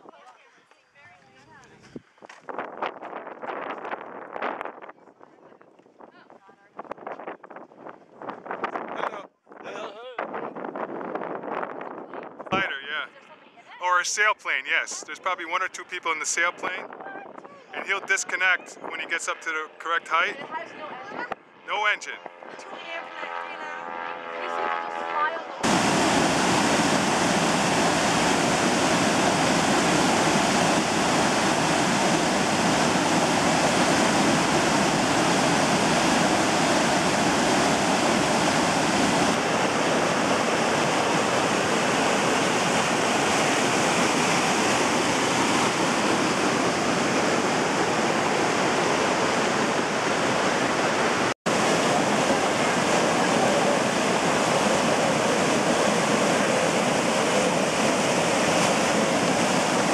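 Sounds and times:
river rushing over waterfalls: 25.6s - 59.9s.

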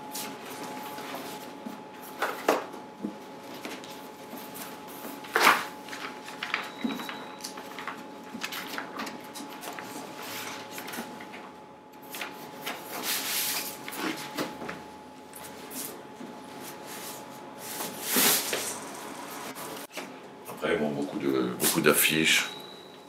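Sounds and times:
paper posters rustling: 3.4s - 14.6s.

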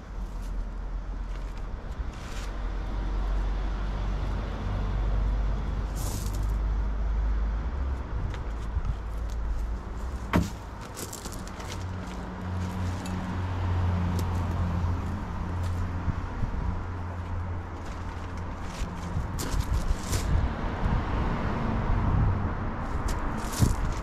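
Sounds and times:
vehicle engine rumble: 0.0s - 24.0s
sharp knock: 10.3s - 10.6s.

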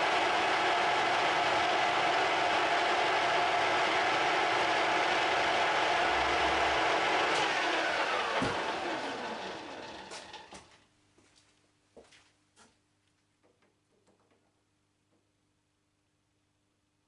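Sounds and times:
metal lathe whining: 0.0s - 10.6s.

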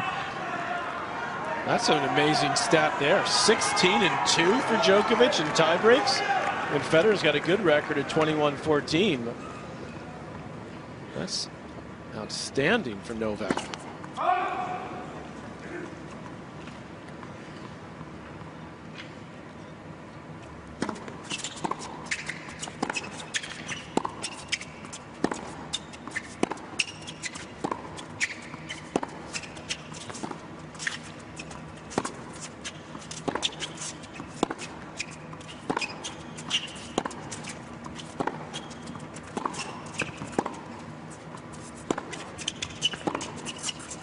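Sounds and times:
shoes squeaking on court: 20.3s - 44.0s.

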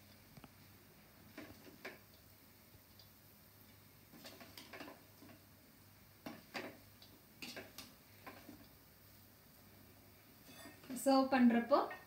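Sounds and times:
spatula scraping steel pan: 10.5s - 10.8s.

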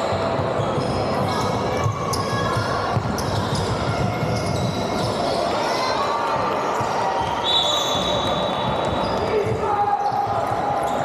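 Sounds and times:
shoe squeaks on court: 3.1s - 5.6s, 7.4s - 9.3s.

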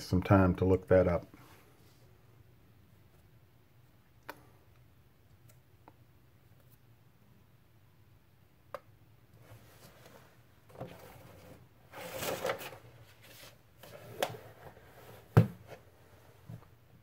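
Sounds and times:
book pages rustling: 9.6s - 15.9s.

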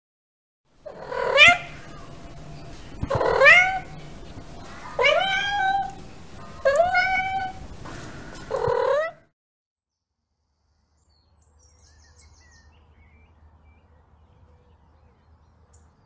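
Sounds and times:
cat meowing: 0.9s - 2.1s, 3.0s - 3.9s, 4.8s - 7.6s, 8.4s - 9.2s.

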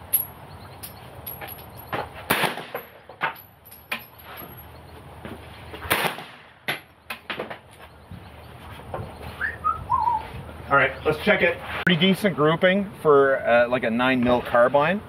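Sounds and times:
carbine gunshots: 2.3s - 2.9s, 5.9s - 6.9s.

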